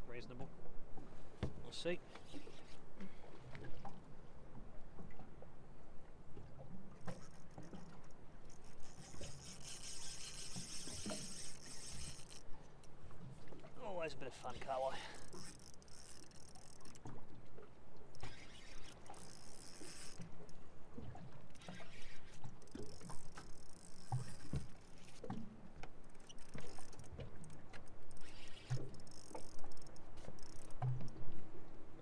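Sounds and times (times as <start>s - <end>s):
spinning reel cranking: 7.1s - 13.0s, 14.5s - 17.1s, 18.1s - 20.6s, 21.5s - 25.2s, 26.0s - 31.1s.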